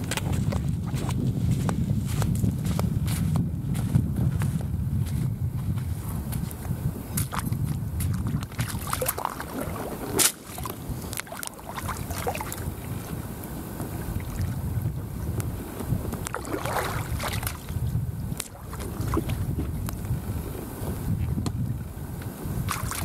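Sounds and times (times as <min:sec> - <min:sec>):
feet wading in shallow water: 0:00.0 - 0:02.2, 0:06.3 - 0:15.0, 0:15.6 - 0:21.4, 0:22.5 - 0:23.0
wind buffeting microphone: 0:00.0 - 0:23.0.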